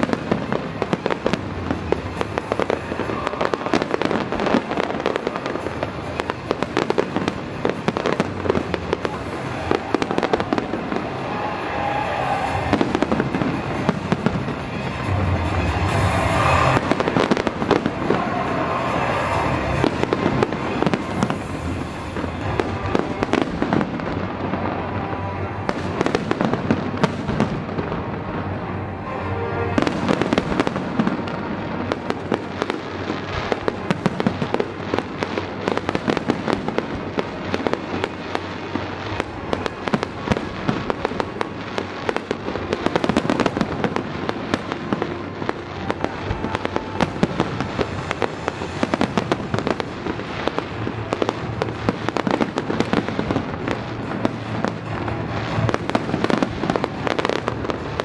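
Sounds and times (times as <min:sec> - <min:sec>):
continuous rumble: 0:00.0 - 0:58.0
fireworks bangs and crackles: 0:00.0 - 0:58.0.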